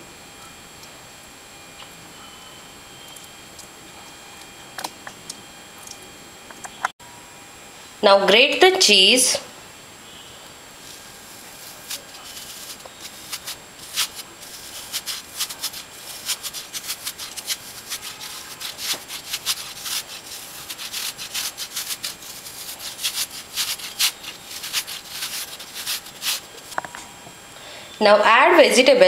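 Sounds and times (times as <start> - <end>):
cheese grater rasping: 10.8 - 26.8.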